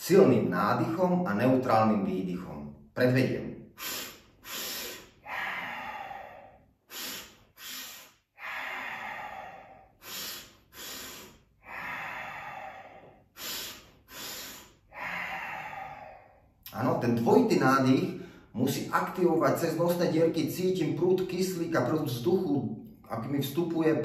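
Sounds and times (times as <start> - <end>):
man sniffing sharply through nose: 3.7 - 16.1
man exhaling: 3.7 - 16.7.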